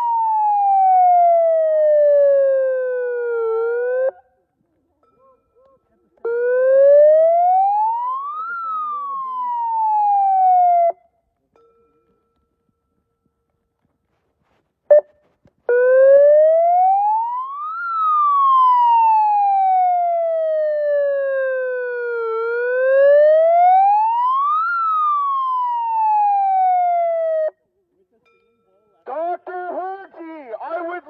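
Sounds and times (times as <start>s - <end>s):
siren wailing: 0.0s - 4.3s, 6.2s - 11.1s, 15.7s - 27.6s
short beep: 14.9s - 15.2s.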